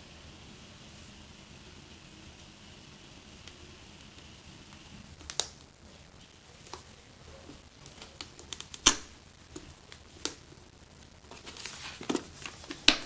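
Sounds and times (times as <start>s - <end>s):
plastic connectors clicking: 5.2s - 5.6s, 7.8s - 10.6s.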